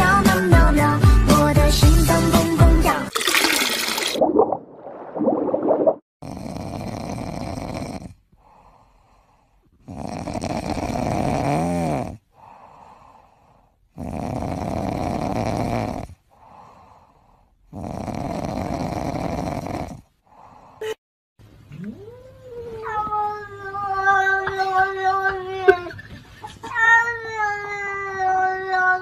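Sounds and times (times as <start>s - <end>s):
cat snoring: 6.2s - 9.2s, 9.8s - 16.9s, 17.7s - 20.6s.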